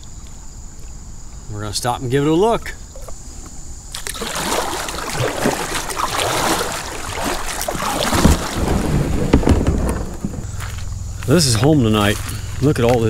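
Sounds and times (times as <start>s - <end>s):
water splashing: 3.9s - 10.8s
hull scraping over stones: 6.9s - 13.0s.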